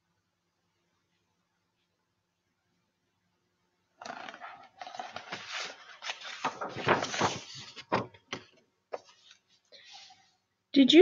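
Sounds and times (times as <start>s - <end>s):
book pages turning: 4.0s - 9.5s
paper rustling: 4.0s - 10.2s.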